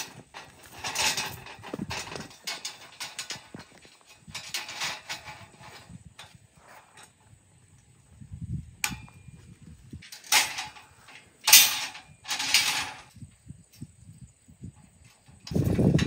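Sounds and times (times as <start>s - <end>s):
metal scraping on metal: 0.0s - 7.3s, 10.0s - 13.1s
sharp metallic click: 8.8s - 9.2s.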